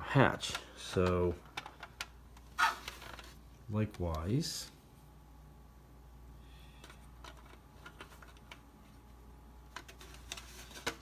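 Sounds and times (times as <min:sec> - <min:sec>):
low steady hum: 0:00.0 - 0:11.0
plastic parts clicking and tapping: 0:00.4 - 0:03.3, 0:06.8 - 0:08.7.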